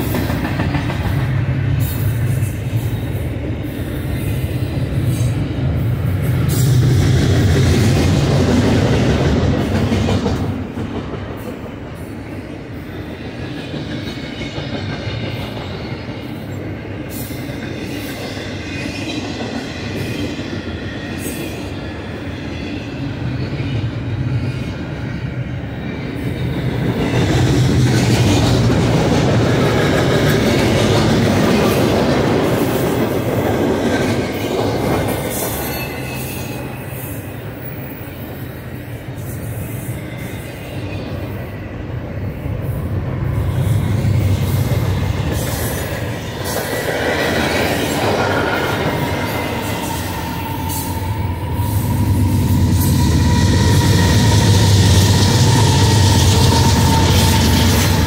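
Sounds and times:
rail clatter: 0.0s - 2.4s
train rumbling past: 0.0s - 58.0s.

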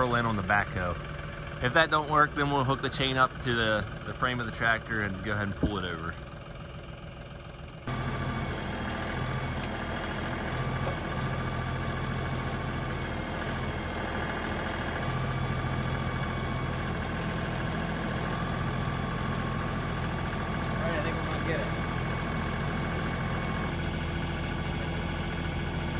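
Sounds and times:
tractor diesel engine running: 0.0s - 25.9s
backhoe hydraulics: 1.0s - 1.6s, 6.2s - 24.3s.

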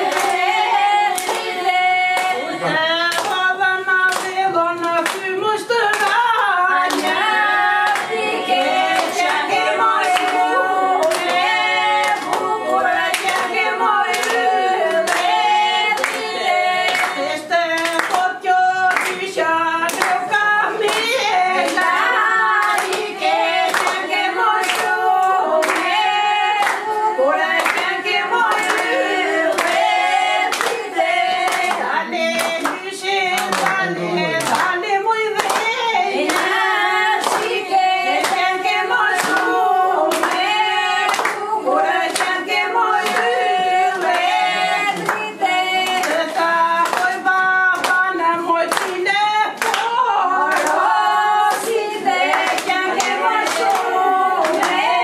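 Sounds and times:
hand clapping: 0.0s - 55.0s
women singing together: 0.0s - 55.0s.

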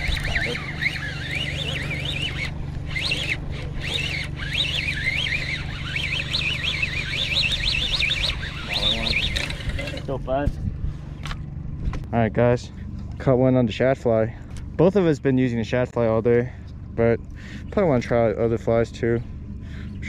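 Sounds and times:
fishing reel gears whining: 0.0s - 10.4s
steady low hum: 0.0s - 20.0s.

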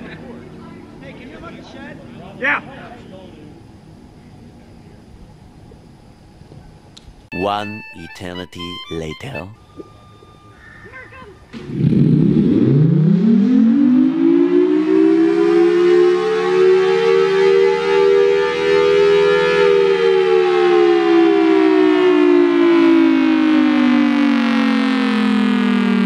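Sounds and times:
two-tone siren: 7.3s - 26.0s.

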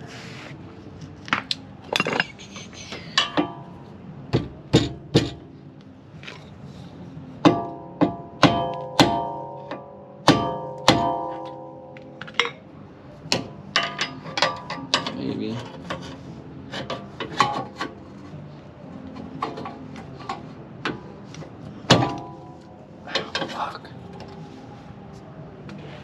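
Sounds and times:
tools clinking on metal: 1.8s - 3.7s, 13.7s - 16.0s
hammer striking metal: 7.4s - 12.6s.

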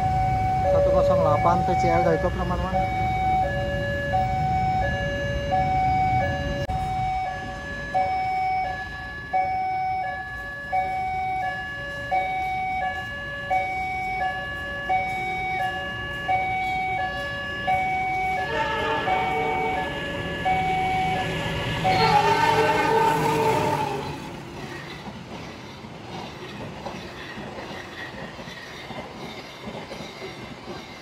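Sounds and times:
two-tone crossing alarm chime: 0.0s - 22.4s
road traffic rumble: 10.2s - 26.1s.

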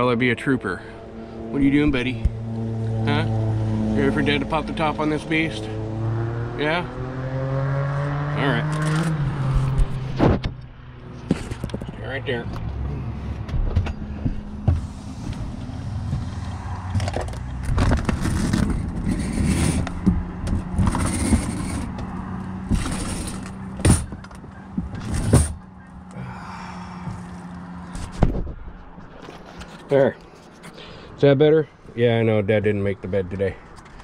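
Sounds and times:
gear bumping and rustling: 8.7s - 26.1s, 27.0s - 30.6s.

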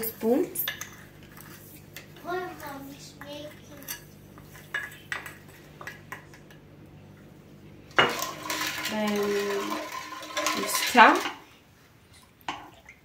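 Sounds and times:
spatula scraping a bowl: 0.6s - 2.1s.

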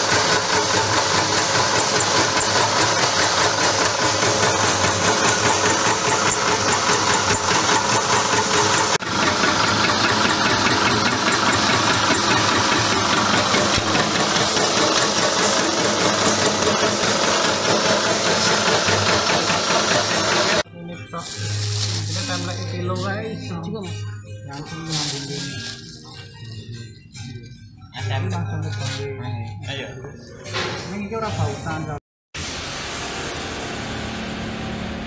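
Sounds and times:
peanut-chopping machine running: 0.0s - 20.6s.

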